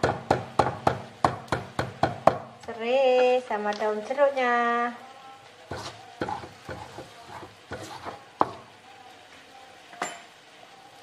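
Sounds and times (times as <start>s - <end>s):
stone pestle knocking in mortar: 0.0s - 2.6s.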